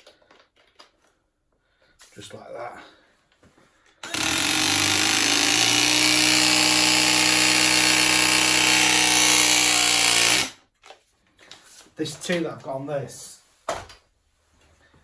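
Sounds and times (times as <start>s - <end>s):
press tool motor running: 4.0s - 10.6s.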